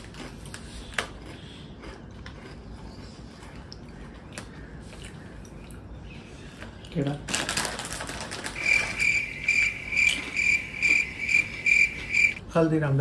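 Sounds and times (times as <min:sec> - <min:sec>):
potato chip crunching: 0:00.0 - 0:03.0, 0:07.2 - 0:12.3.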